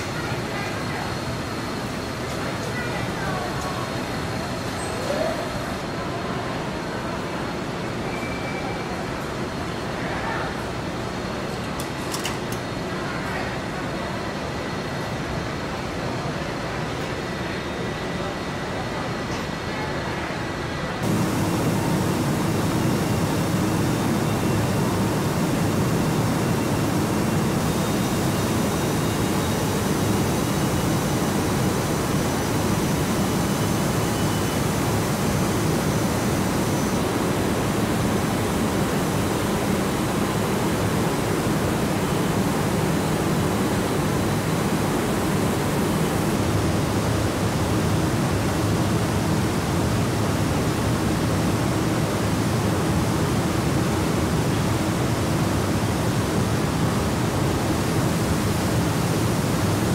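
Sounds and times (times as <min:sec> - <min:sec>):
ventilation airflow: 0:09.1 - 0:59.9
faint high whines: 0:21.0 - 0:46.3.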